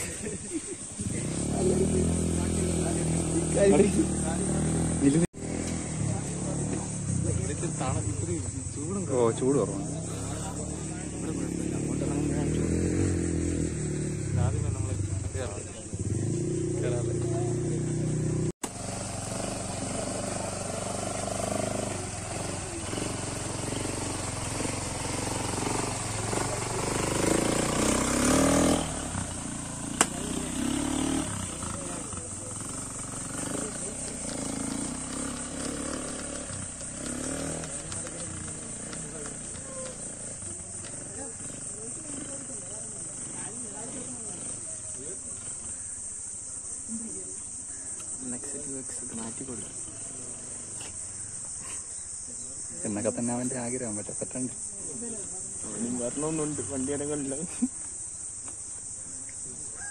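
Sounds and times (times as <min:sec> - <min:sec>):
faint distant voices: 0:00.0 - 0:18.5, 0:19.4 - 0:59.9
quad bike engine revving: 0:00.0 - 0:58.9
insect chorus drone: 0:00.0 - 0:59.9
sharp click: 0:30.0 - 0:30.2.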